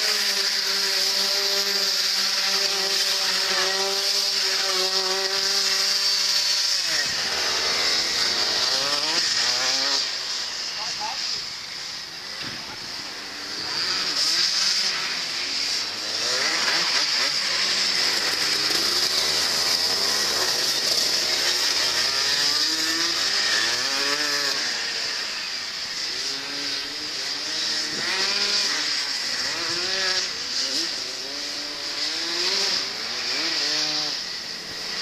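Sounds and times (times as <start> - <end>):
go-kart engines revving: 0.0 - 35.0.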